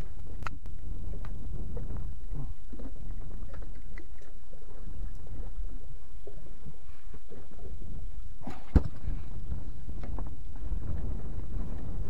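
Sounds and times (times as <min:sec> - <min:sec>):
wind buffeting microphone: 0:00.0 - 0:03.8, 0:07.2 - 0:12.0.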